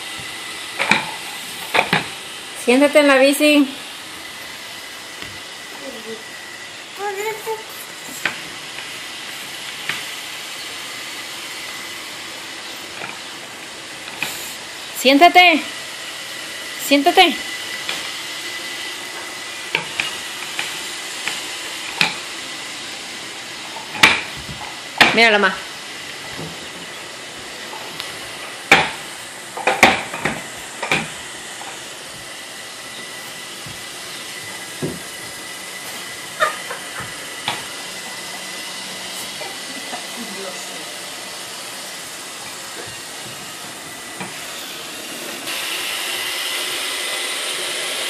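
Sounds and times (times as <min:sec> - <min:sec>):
wooden bike knocking on floor: 0:34.8 - 0:35.1.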